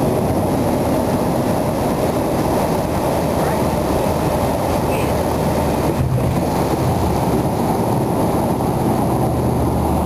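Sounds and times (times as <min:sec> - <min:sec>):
propeller engine drone in cabin: 0:00.0 - 0:10.0.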